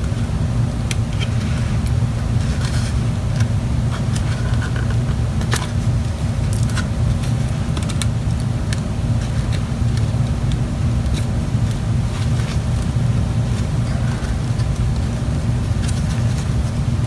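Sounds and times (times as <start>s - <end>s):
low background rumble: 0.0s - 17.0s.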